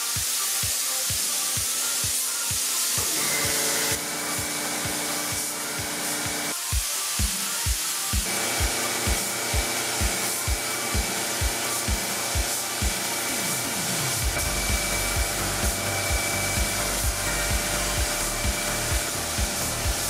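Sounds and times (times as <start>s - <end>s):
airy hiss: 0.0s - 20.0s
electronic music: 0.0s - 20.0s
kick drum: 4.4s - 13.0s, 14.2s - 20.0s
deep bass line: 14.2s - 20.0s
sustained synth tones: 14.3s - 20.0s.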